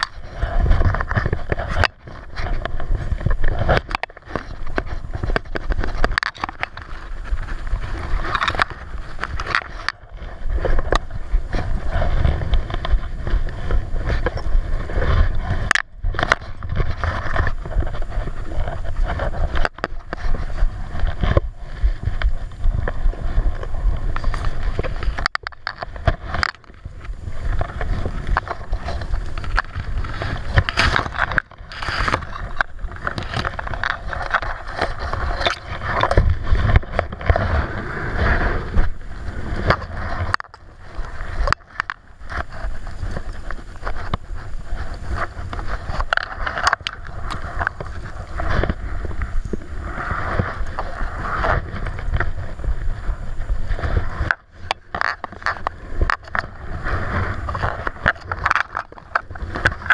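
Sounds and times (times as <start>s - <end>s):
wind buffeting microphone: 0.0s - 59.9s.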